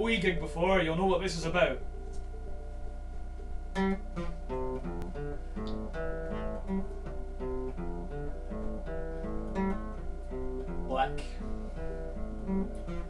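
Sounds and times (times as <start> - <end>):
acoustic guitar picking: 3.4 - 13.0.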